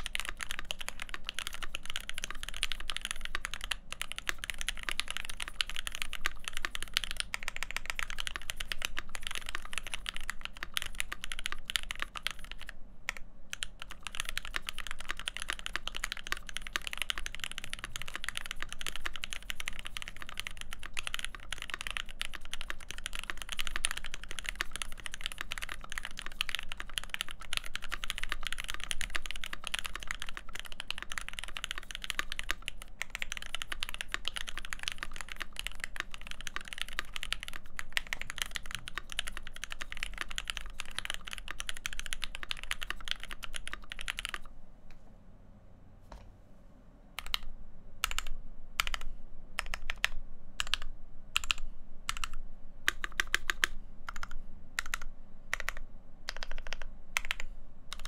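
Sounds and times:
fast typing on mechanical keyboard: 0.0s - 44.5s, 47.2s - 58.0s.

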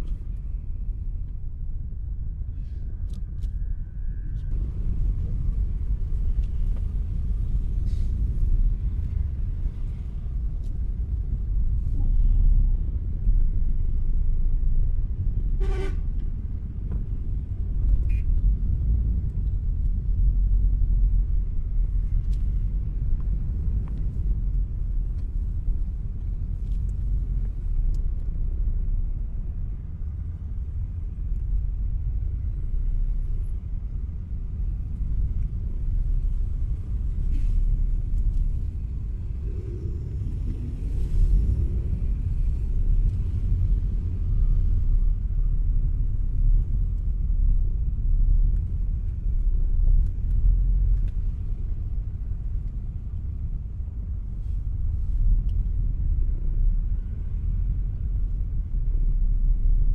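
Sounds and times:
road traffic rumble: 0.0s - 59.9s
vehicle horn toot: 15.6s - 16.0s.

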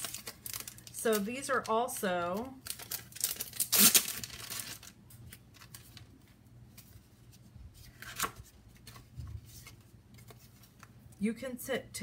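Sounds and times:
plastic sleeve crinkling: 0.0s - 6.9s.

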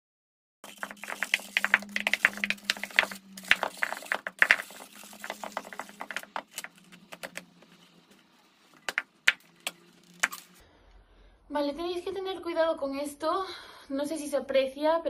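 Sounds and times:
rope tearing and crackling: 0.6s - 7.5s, 8.8s - 10.6s.

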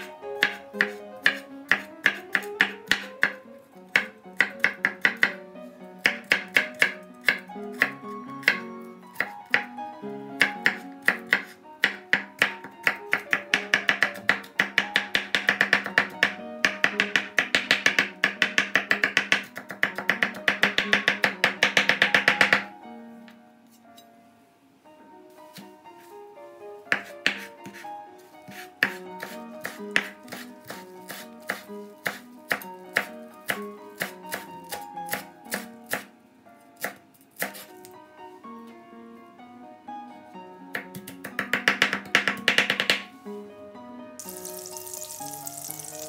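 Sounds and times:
knife chopping on cutting board: 0.0s - 5.4s, 6.0s - 9.7s, 10.4s - 22.7s, 26.9s - 27.8s, 28.5s - 36.1s, 36.8s - 37.9s, 40.8s - 43.1s
background music: 0.0s - 46.0s.

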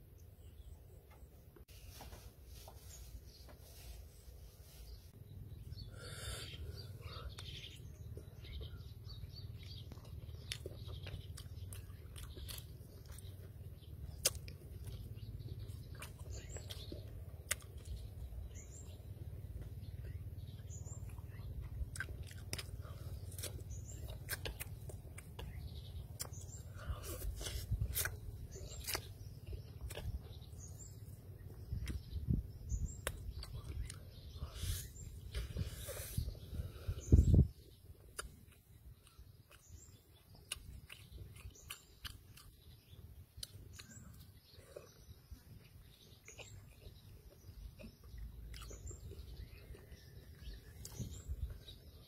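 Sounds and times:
wet mouth clicks: 14.1s - 14.6s, 38.0s - 39.8s.

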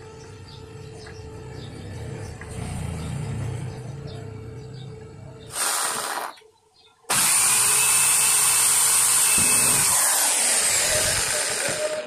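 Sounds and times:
electric drill whining: 5.5s - 6.3s, 7.1s - 12.0s.

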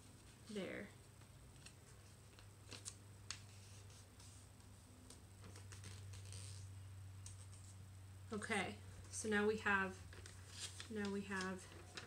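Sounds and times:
low steady hum: 0.0s - 12.0s
paper crinkling and rustling: 10.0s - 12.0s.

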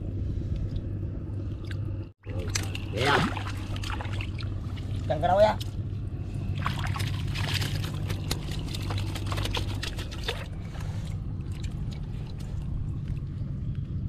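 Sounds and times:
low motor hum: 0.0s - 14.0s
water splashing: 2.2s - 5.7s, 6.4s - 13.2s.

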